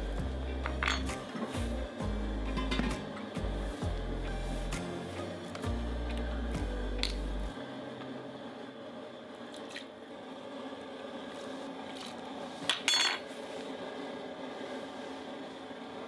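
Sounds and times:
steady low background noise: 0.0s - 16.0s
utensils clinking against dishes: 0.6s - 1.6s, 2.5s - 3.3s.

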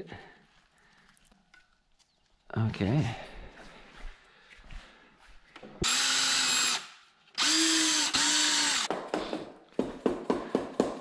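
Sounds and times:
power drill motor whirring: 5.8s - 8.9s.

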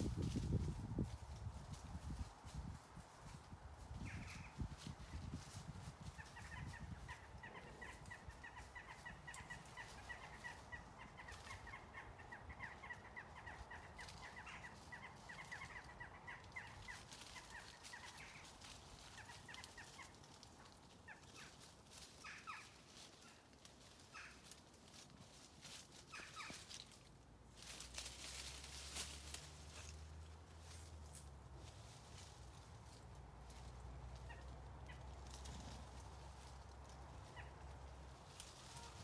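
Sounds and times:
short repeated animal calls: 38.5s - 39.0s.

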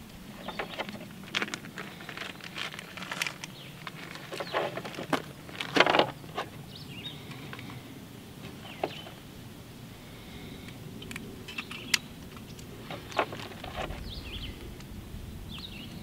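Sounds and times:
handling clatter: 0.3s - 6.6s, 11.5s - 14.2s.

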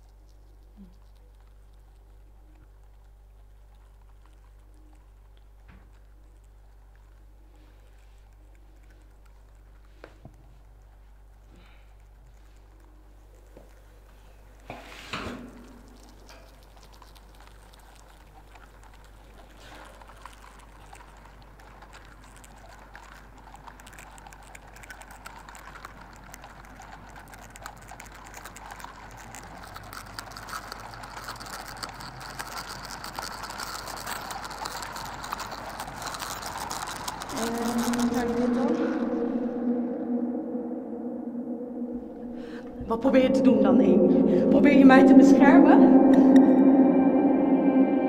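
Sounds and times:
low hum: 10.6s - 21.5s, 36.9s - 48.0s
dense crackling and clicking: 15.4s - 39.2s
sharp hit with ringing tail: 39.0s - 48.0s.

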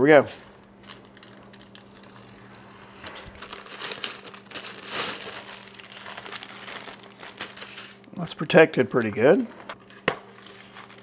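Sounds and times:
packaging crinkling and rustling: 0.4s - 8.1s, 9.0s - 11.0s.

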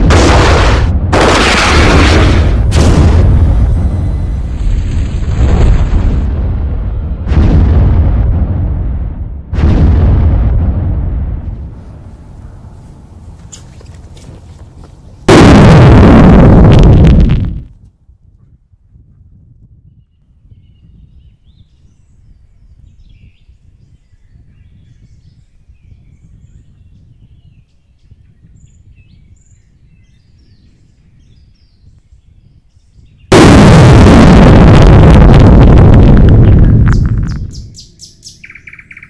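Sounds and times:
deep rumbling explosion: 0.0s - 12.8s, 15.2s - 17.7s, 33.3s - 37.8s
bird chirps: 37.2s - 39.0s.

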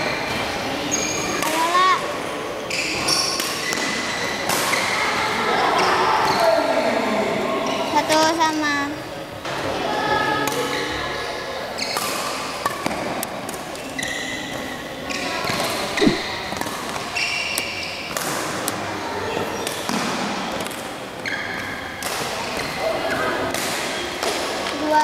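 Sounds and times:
murmur of voices: 0.0s - 17.2s
shoes squeaking on court floor: 16.0s - 16.4s.

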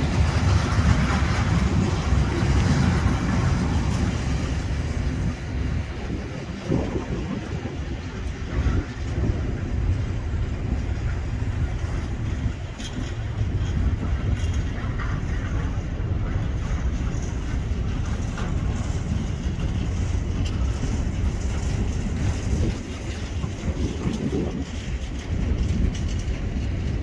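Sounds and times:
diesel locomotive engine rumbling: 0.0s - 27.0s.

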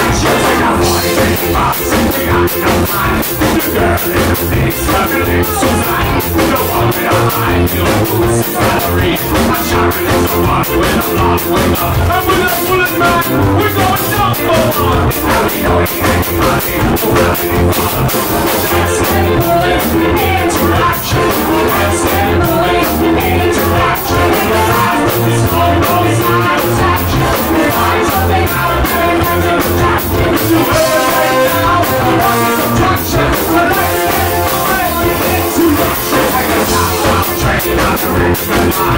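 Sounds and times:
bass: 0.0s - 38.9s
drums: 0.0s - 38.9s
electric guitar: 0.0s - 38.9s
person singing lead vocal: 0.0s - 38.9s
horn section with trombone: 29.5s - 37.4s.

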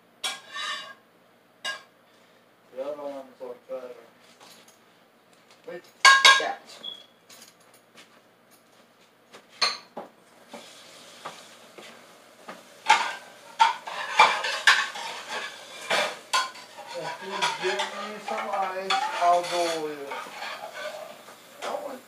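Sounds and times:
dishes and utensils clinking: 6.0s - 7.6s, 9.6s - 10.0s, 12.8s - 22.0s
steady hiss: 10.3s - 22.0s.

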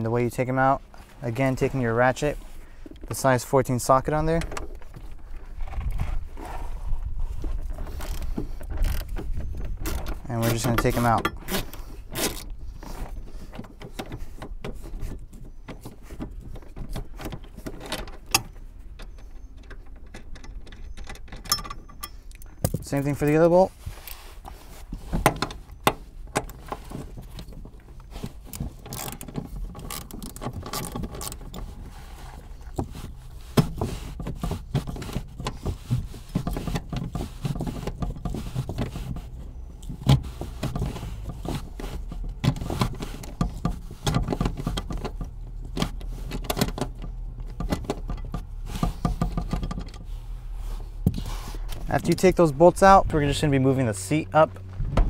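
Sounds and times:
metallic rattles and knocks: 13.2s - 23.4s, 25.2s - 50.1s.

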